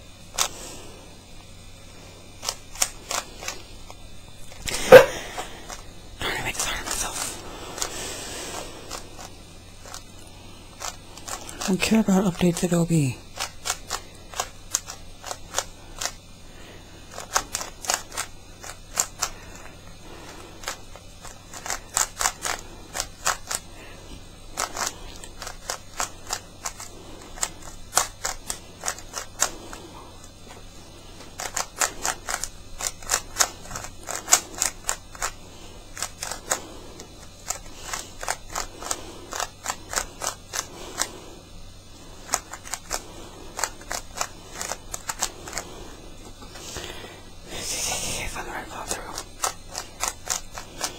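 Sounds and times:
puzzle cube layers clicking: 10.8 - 16.2, 17.1 - 19.8, 20.6 - 23.6, 24.6 - 29.8, 31.1 - 41.1, 42.2 - 45.7, 48.8 - 50.9.

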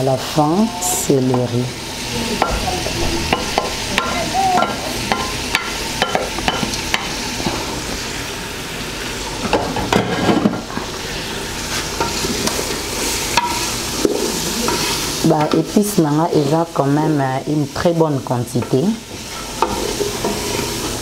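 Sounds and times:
vegetables sizzling in a pot: 0.0 - 21.0.

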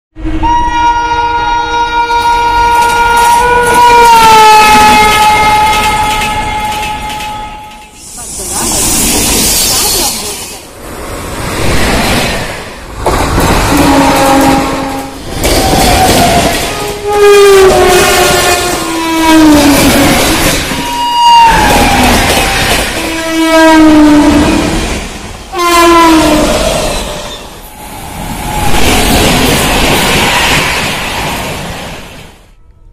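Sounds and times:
locomotive air horn: 0.2 - 7.8, 13.7 - 15.2, 16.3 - 22.2, 23.0 - 24.7, 25.5 - 26.8
train rumble: 0.2 - 32.9.

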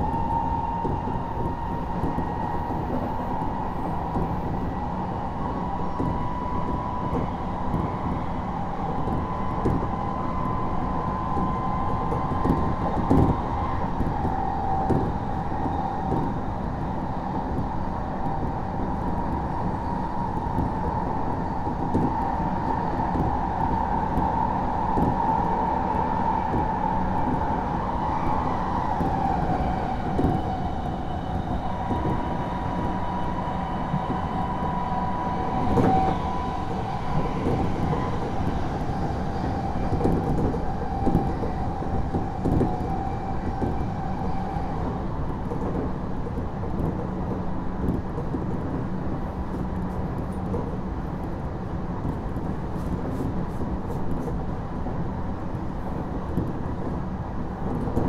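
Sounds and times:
train wheels rumbling on rail: 0.0 - 58.0
rail-joint clicks: 35.5 - 48.8.

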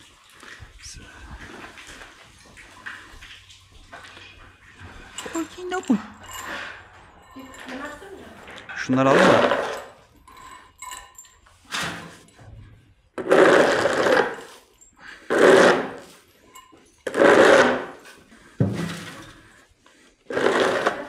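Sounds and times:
rough scraping strokes: 13.2 - 16.2, 17.0 - 18.2, 20.2 - 21.0.

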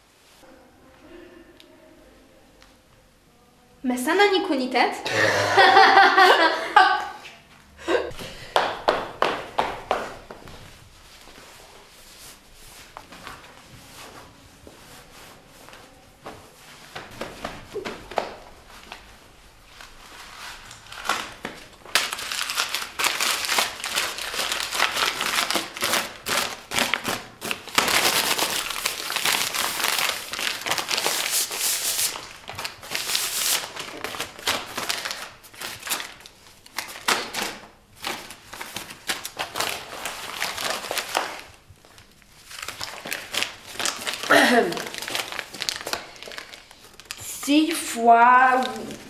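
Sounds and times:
paper crumpling: 16.8 - 49.0.

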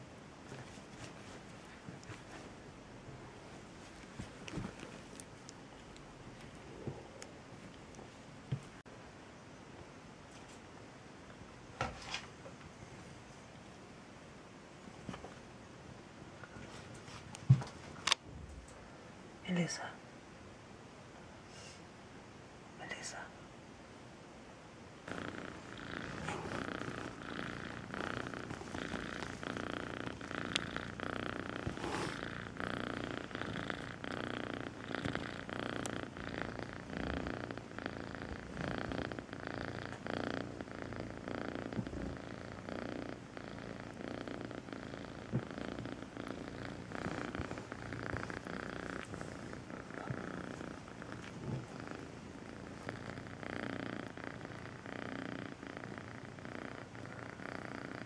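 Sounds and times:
cat purring: 0.0 - 8.9, 25.0 - 58.0.

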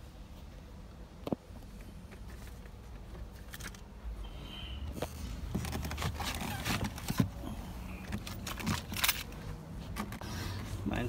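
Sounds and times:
rustling and scraping: 1.6 - 3.9, 4.9 - 10.9.

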